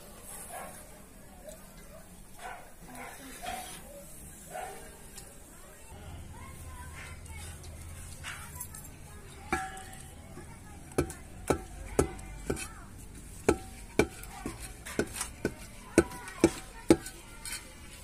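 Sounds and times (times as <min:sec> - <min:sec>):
wooden stick knocking on metal pot: 0:09.4 - 0:18.0.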